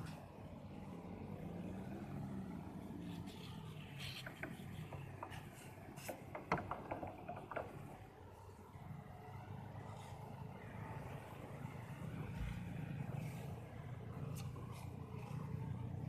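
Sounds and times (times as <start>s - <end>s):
clicks and taps: 4.0s - 7.9s.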